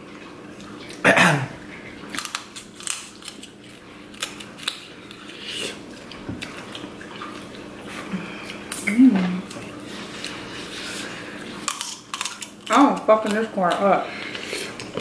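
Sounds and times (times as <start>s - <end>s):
crab shells cracking: 2.1s - 5.4s, 11.6s - 15.0s.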